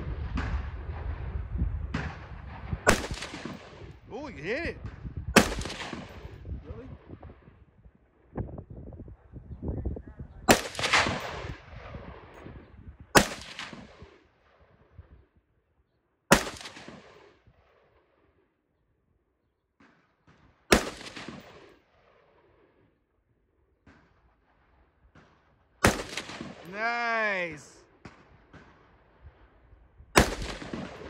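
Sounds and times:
gunshots echoing: 0:01.9 - 0:03.9, 0:05.4 - 0:06.2, 0:10.5 - 0:11.6, 0:13.2 - 0:14.1, 0:16.3 - 0:17.3, 0:20.7 - 0:21.7, 0:25.8 - 0:28.8, 0:30.2 - 0:31.0.

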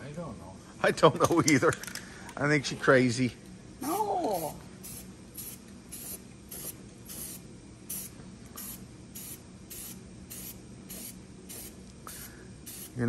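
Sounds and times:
spray paint can hissing: 0:04.3 - 0:13.0.

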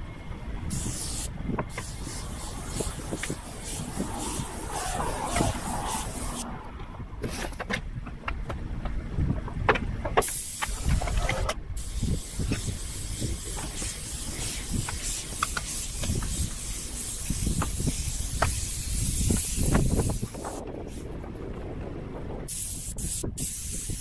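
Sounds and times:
paint spray gun hissing: 0:00.7 - 0:06.4, 0:10.2 - 0:11.2, 0:11.8 - 0:20.6, 0:22.5 - 0:24.0.

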